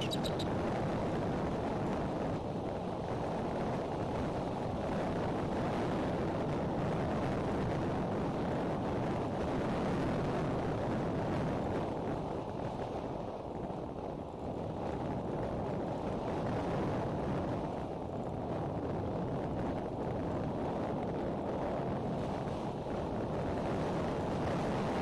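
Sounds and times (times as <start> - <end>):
high chirping: 0.0 - 0.5
strong wind on microphone: 0.0 - 25.0.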